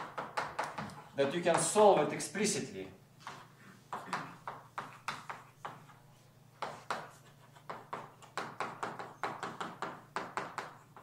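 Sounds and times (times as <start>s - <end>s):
chalk tapping and scraping on chalkboard: 0.0s - 1.9s, 3.2s - 11.0s.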